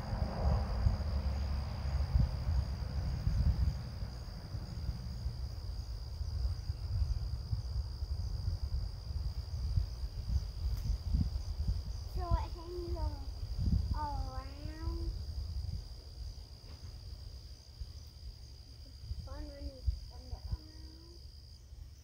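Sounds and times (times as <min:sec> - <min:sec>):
low uneven rumble: 0:00.0 - 0:21.7
crickets droning: 0:00.0 - 0:22.0.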